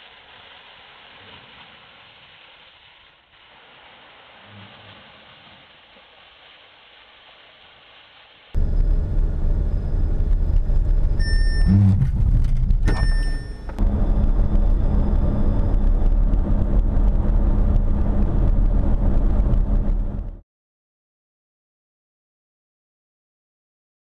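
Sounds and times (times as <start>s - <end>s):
road and engine rumble: 8.6s - 20.4s
short high beeps: 11.2s - 12.1s, 12.8s - 13.8s.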